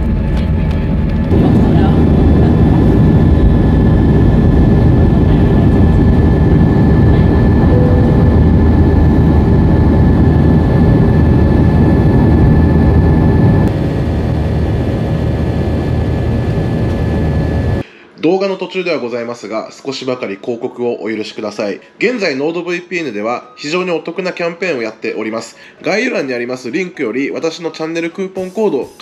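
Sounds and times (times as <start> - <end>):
high engine whine: 0.0 - 17.9
jet engine roar: 0.0 - 17.9.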